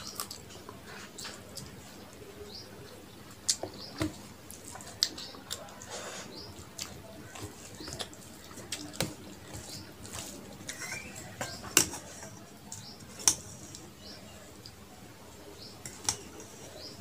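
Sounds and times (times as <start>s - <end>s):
wet chewing and lip-smacking: 3.2s - 11.9s.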